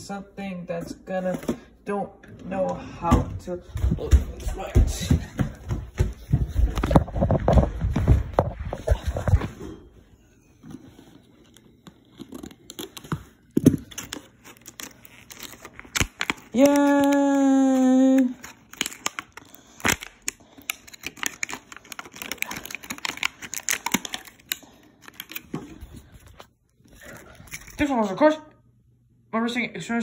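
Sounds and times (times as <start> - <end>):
plastic packaging tearing and crinkling: 11.4 - 27.8.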